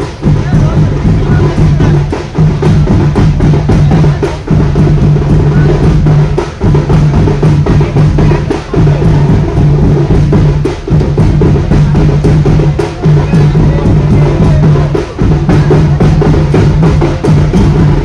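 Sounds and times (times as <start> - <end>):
drums beating: 0.0 - 18.0.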